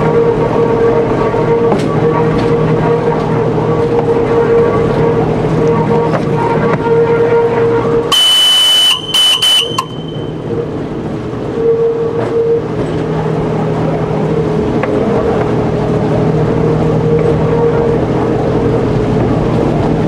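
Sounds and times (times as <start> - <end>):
shrill train horn blasts: 0.0 - 13.4
train rolling along track: 0.0 - 20.0.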